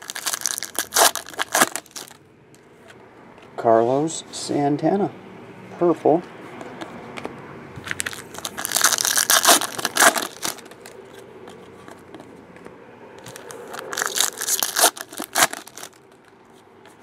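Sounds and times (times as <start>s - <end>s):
wrappers tearing and crinkling: 0.0s - 2.2s, 7.9s - 11.2s, 13.3s - 16.1s.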